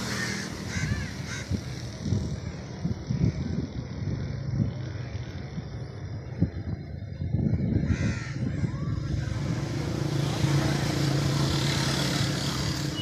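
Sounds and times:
bird cawing: 0.0 - 2.6, 7.8 - 9.4
low outdoor rumble: 0.0 - 11.5
motor vehicle engine and road noise: 0.0 - 13.0.

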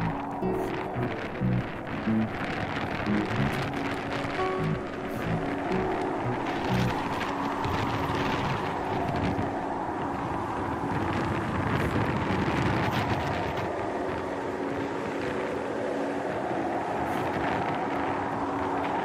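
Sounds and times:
wind on microphone: 0.0 - 19.0.

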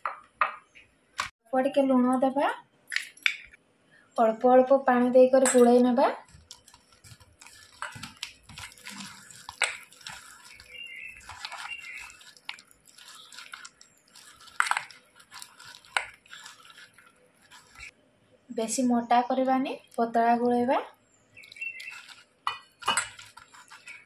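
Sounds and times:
hand kneading wet batter: 5.6 - 18.0, 21.4 - 24.0.

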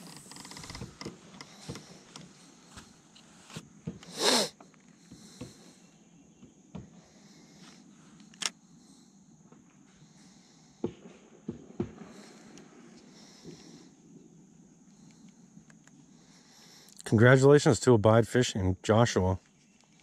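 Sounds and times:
faint taps and knocks of gear: 0.0 - 5.6.

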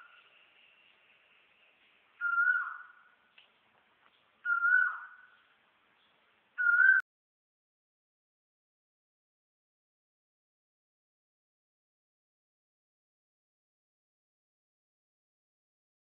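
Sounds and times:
bird whistling: 2.2 - 3.1, 4.4 - 5.4, 6.6 - 7.0.

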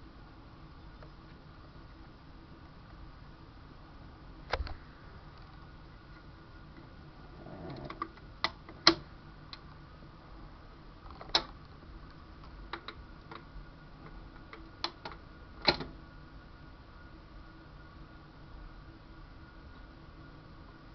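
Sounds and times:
faint hum and hiss: 0.0 - 20.9
vinyl record clicks and pops: 4.4 - 6.8, 11.0 - 15.9.

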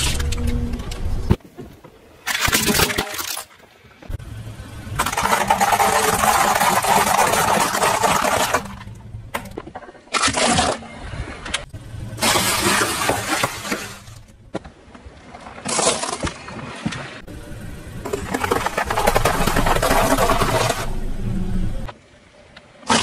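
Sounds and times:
car tyre crushing dry pasta: 2.2 - 3.7, 4.9 - 11.0, 12.2 - 14.6, 15.4 - 16.5, 18.0 - 21.1
tyre crushing small objects: 2.2 - 3.7, 18.0 - 21.0
car engine humming: 4.0 - 6.5, 11.4 - 14.6, 17.2 - 21.9.

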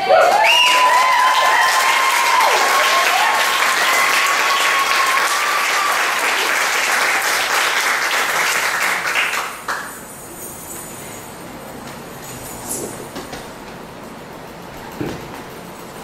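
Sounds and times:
crowd cheering: 0.0 - 9.8
audience applauding: 0.0 - 10.1.

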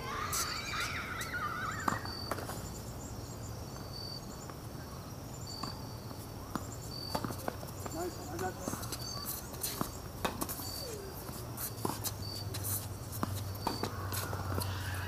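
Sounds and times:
high insect chirp: 0.0 - 15.0
tennis ball bouncing: 1.2 - 2.6, 6.5 - 14.7.

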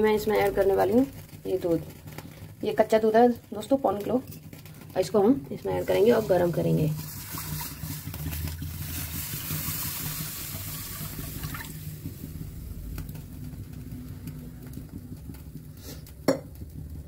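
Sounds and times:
milk pouring and splashing: 5.8 - 12.7.

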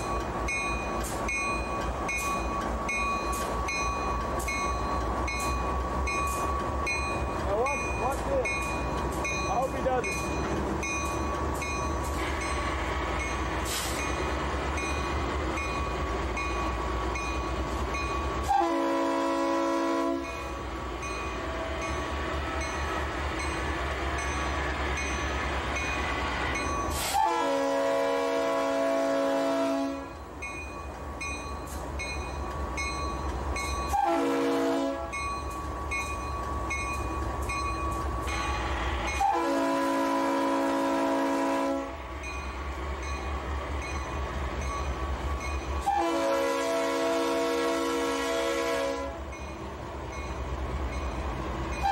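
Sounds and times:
diesel locomotive engines rumbling: 0.0 - 51.9
train air horn blasts: 18.4 - 20.4, 27.0 - 30.1, 33.9 - 35.2, 38.5 - 42.0, 45.8 - 49.2.

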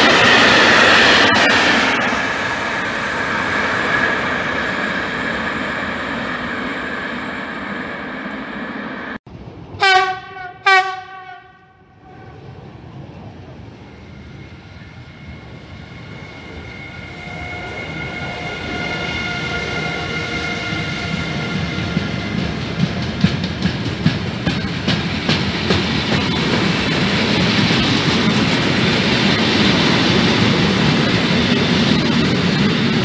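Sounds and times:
electric locomotive whine: 0.0 - 33.0
wheels clicking over rail joints: 21.6 - 33.0.

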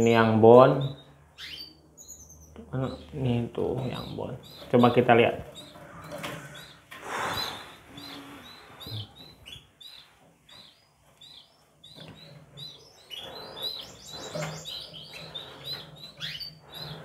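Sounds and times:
canary chicks cheeping: 0.0 - 17.0
soft puffs of breath: 5.8 - 9.2.

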